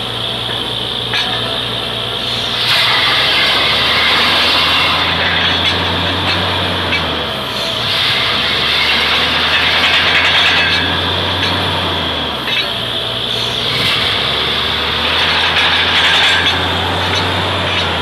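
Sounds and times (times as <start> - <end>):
drilling rig engine drone: 0.0 - 18.0
harsh rattling hiss: 0.0 - 18.0.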